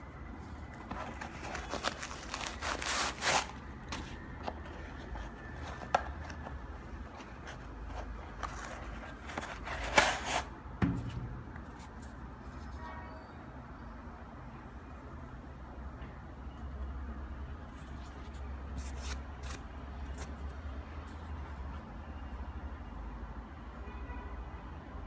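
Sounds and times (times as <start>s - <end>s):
soft thump: 10.8s - 11.4s.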